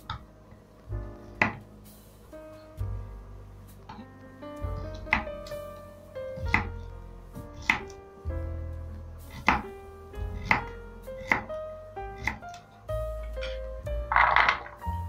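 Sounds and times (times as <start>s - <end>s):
knife chopping on wooden board: 6.4s - 6.7s.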